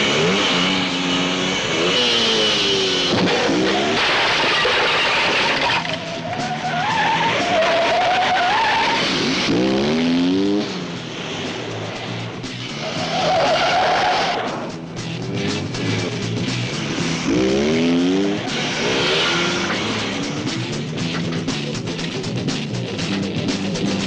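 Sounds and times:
engines revving: 0.0s - 24.0s
tyre squeal: 3.3s - 9.1s, 12.8s - 14.6s.

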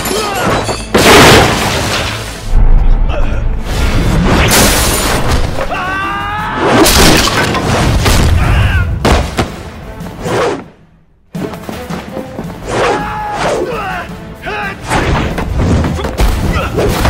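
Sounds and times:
glass shattering: 0.0s - 2.4s, 4.4s - 5.5s, 6.8s - 7.9s
dramatic music: 0.0s - 17.0s.

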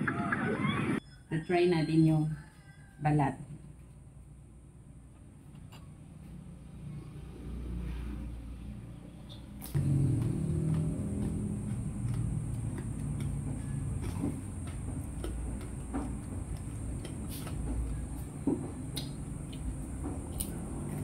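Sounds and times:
crunchy chewing: 9.6s - 21.0s.

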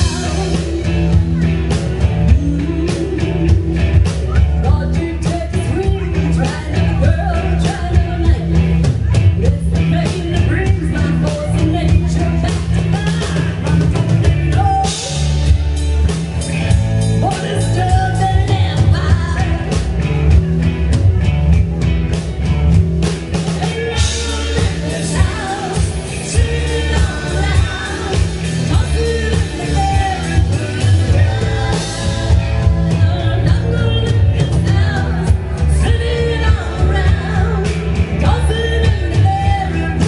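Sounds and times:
woman singing lead: 0.0s - 15.6s, 17.0s - 20.5s, 23.4s - 40.0s
drum kit with cymbal hits: 0.0s - 40.0s
electric guitars: 0.0s - 40.0s.

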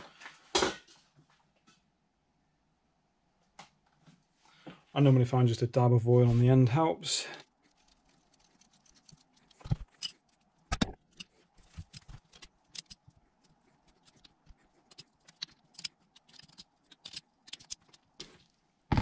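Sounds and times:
metal fitting clinks and scrapes: 7.7s - 13.2s, 13.9s - 18.5s.

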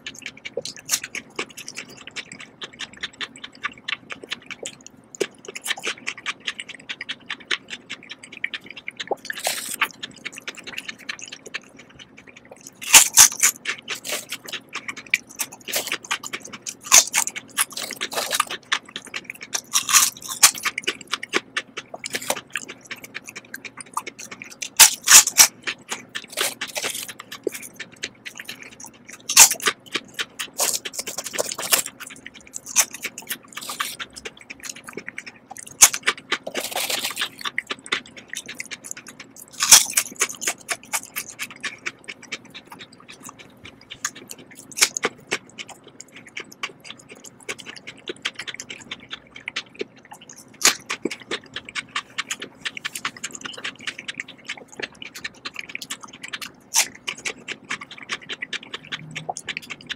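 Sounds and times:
potato chips crunching: 0.0s - 59.9s.

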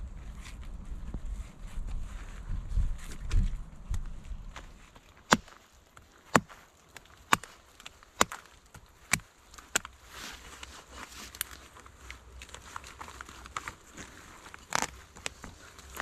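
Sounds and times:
short rustle: 0.0s - 5.8s
hatchet chopping log: 5.2s - 10.0s.

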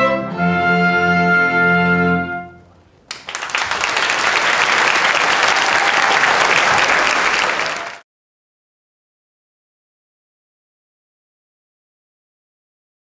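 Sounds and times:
audience applause: 3.1s - 8.0s.

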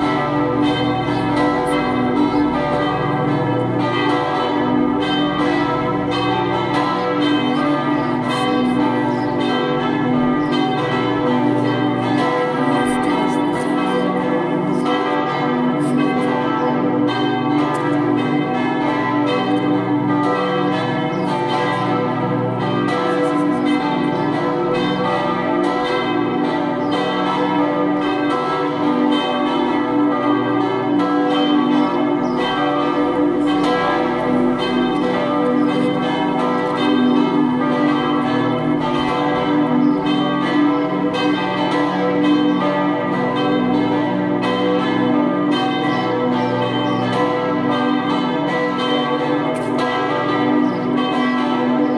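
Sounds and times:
church bells pealing: 0.0s - 51.9s.

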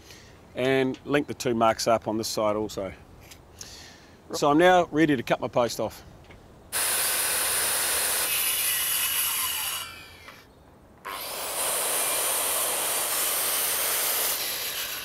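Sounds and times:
circular saw cutting timber: 6.7s - 10.5s, 11.1s - 15.0s.

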